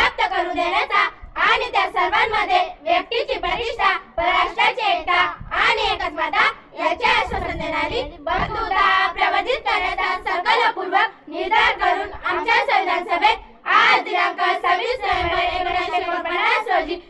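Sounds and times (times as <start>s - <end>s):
children reciting together: 0.0s - 17.0s.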